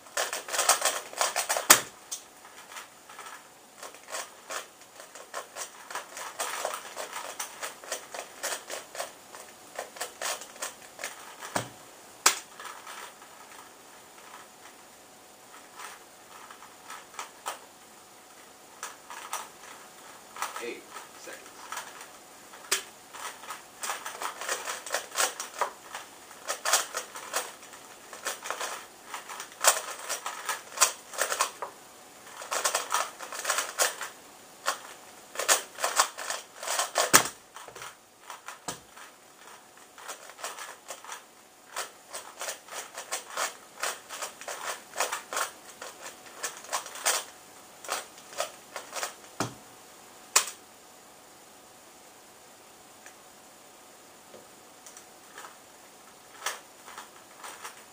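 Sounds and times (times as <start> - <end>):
puzzle cube plastic clicks: 0.1 - 14.4, 18.8 - 19.8, 20.4 - 49.3, 50.4 - 50.6, 56.3 - 57.9.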